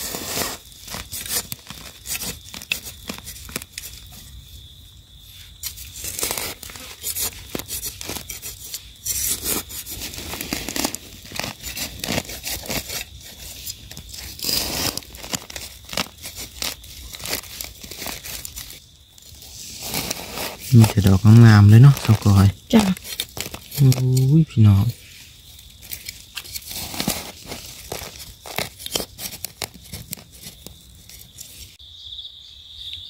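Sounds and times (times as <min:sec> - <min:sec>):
soil scraping: 0:00.0 - 0:04.3, 0:05.2 - 0:31.8
dry leaves rustling and crackling: 0:09.4 - 0:31.8.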